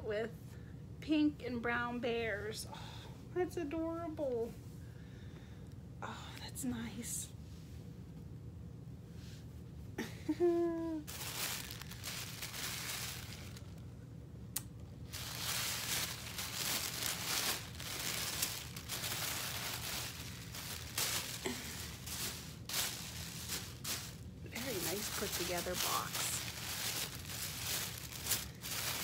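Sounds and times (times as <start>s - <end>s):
fabric and packaging rustling: 11.0s - 13.8s, 15.0s - 29.0s.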